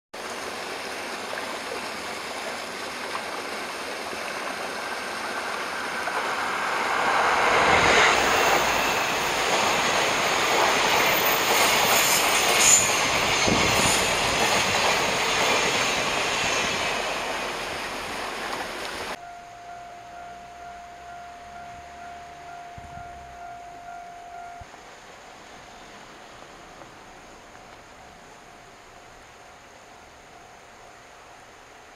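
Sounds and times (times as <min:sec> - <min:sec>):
high wheel squeal: 0:05.7 - 0:14.4
train wheels clacking over rail joints: 0:06.0 - 0:17.4.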